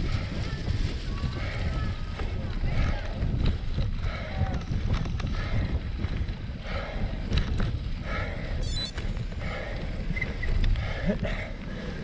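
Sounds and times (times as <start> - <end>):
heavy breathing: 0.0 - 12.0
wind rumbling on microphone: 0.0 - 12.0
high squeak: 8.6 - 8.9.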